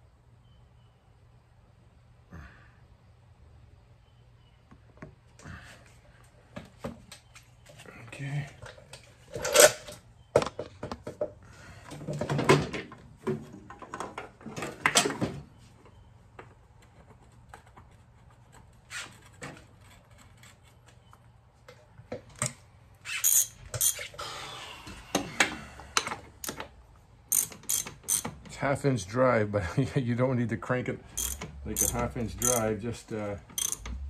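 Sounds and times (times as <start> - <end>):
hand tools clinking and clattering: 31.2 - 32.8, 33.4 - 34.0.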